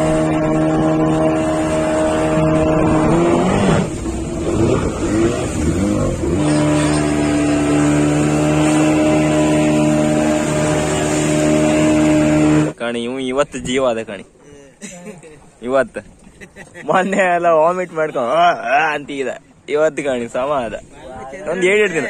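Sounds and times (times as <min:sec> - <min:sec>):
boat engine running: 0:00.0 - 0:12.8.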